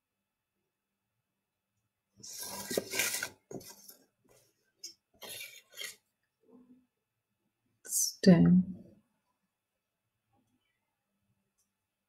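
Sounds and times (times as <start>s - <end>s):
paintbrush scraping cup: 2.2s - 4.0s, 4.8s - 6.1s.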